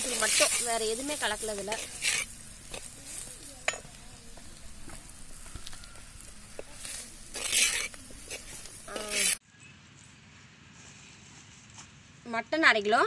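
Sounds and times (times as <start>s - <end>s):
shallots and garlic sizzling: 0.0s - 9.4s
steel ladle scraping pot: 1.6s - 2.9s, 5.5s - 9.4s.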